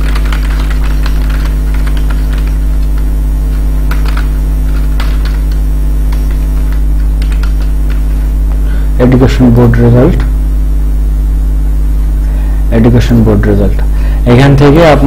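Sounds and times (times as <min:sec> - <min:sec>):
computer keys typing: 0:00.0 - 0:08.2
electrical mains hum: 0:00.0 - 0:15.0.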